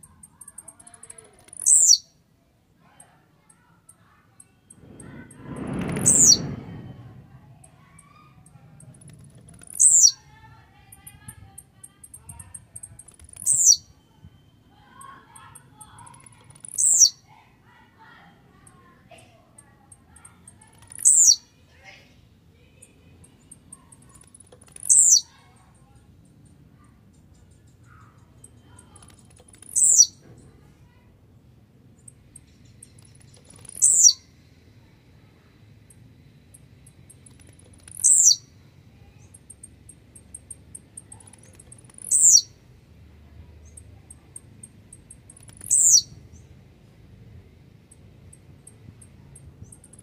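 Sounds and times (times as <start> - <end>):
bird buzzy song: 0.0 - 2.2, 3.5 - 7.1, 7.8 - 10.4, 11.0 - 17.2, 19.6 - 21.5, 22.8 - 30.6, 31.9 - 34.9, 35.9 - 42.7, 43.6 - 46.7
faint high bird chips: 0.0 - 2.2, 7.6 - 17.3, 19.5 - 21.5, 22.7 - 30.3, 32.0 - 34.9, 35.9 - 42.6, 43.6 - 46.5.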